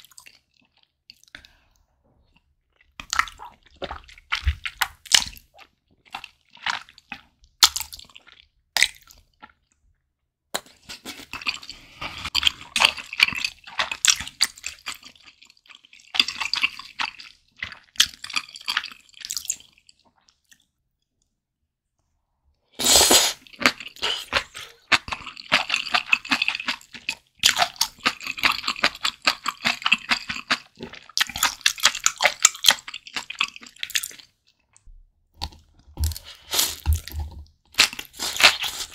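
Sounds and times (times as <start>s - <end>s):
chewing noodles close up: 10.6s - 20.7s, 23.2s - 34.8s, 35.4s - 38.9s.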